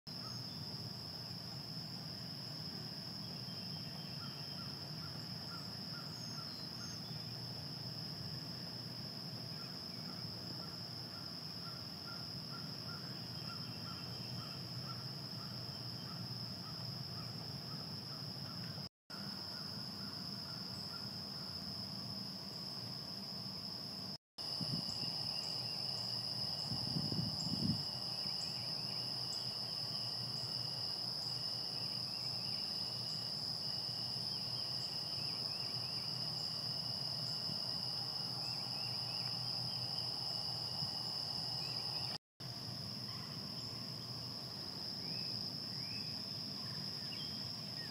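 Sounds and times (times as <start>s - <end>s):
insect chorus: 0.1s - 47.9s
low wind rumble: 26.6s - 27.8s.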